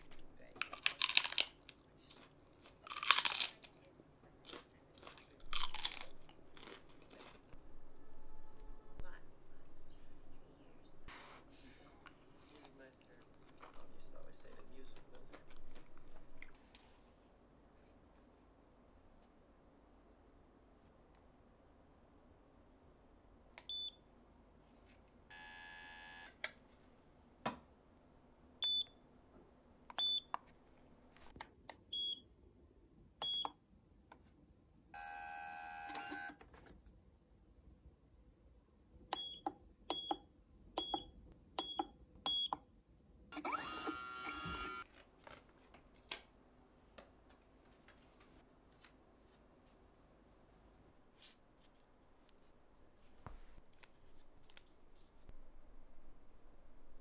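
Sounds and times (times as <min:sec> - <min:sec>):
small machine whirring: 0:35.0 - 0:36.4, 0:43.3 - 0:44.9.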